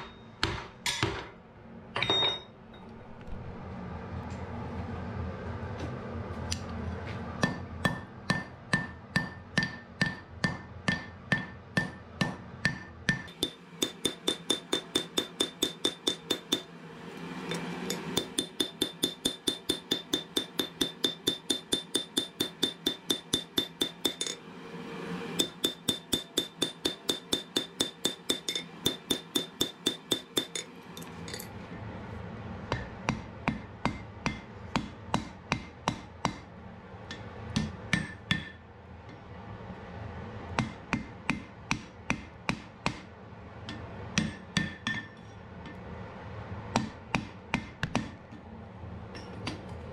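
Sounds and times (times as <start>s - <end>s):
hammer ringing on anvil: 0.0s - 1.2s, 2.0s - 2.6s, 7.4s - 16.7s, 17.9s - 24.4s, 25.4s - 30.7s, 44.2s - 45.2s
steady low hum: 0.0s - 49.9s.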